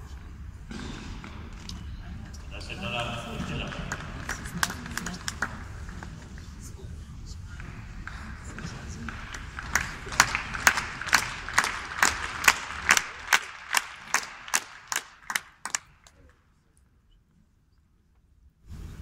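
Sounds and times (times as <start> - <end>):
murmur of spectators: 0.0 - 17.7
crowd clapping in unison: 2.6 - 6.8, 7.5 - 16.3.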